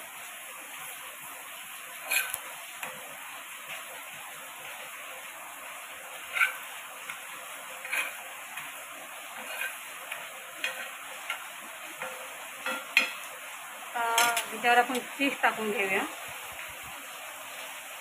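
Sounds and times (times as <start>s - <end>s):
bread sizzling on a griddle: 0.0s - 18.0s
spatula scraping and tapping: 1.9s - 3.9s, 6.1s - 13.3s.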